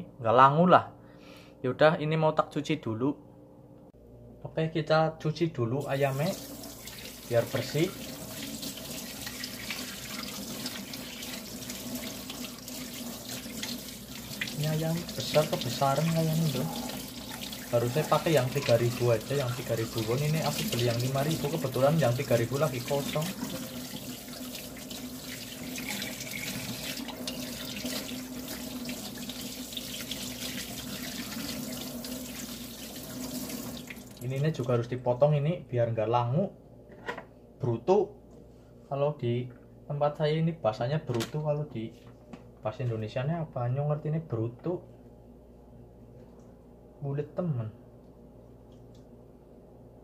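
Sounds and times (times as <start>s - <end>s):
tap water running: 5.8s - 34.4s
water splashing in a sink: 5.9s - 34.4s.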